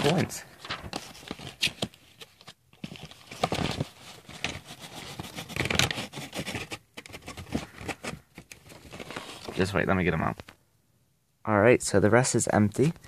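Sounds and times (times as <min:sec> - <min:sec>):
paper envelope crinkling: 0:00.0 - 0:09.7.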